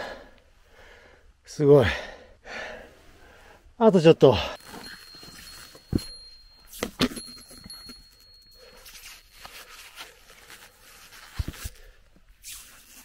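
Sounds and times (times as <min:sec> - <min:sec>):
faint high ringing: 0:04.6 - 0:11.4.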